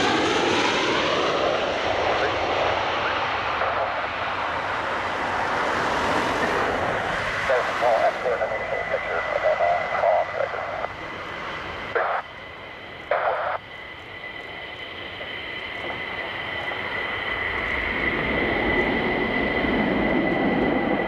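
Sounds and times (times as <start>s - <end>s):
jet engines whining: 0.0s - 21.0s
radio noise bursts: 7.4s - 12.3s, 13.0s - 13.8s.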